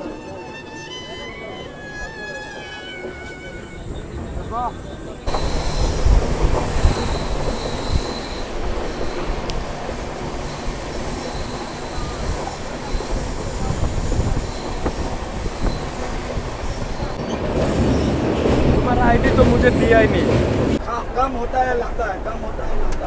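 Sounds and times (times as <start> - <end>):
high wheel squeal: 0.0 - 18.2
train wheels rumbling and clattering: 1.8 - 20.8.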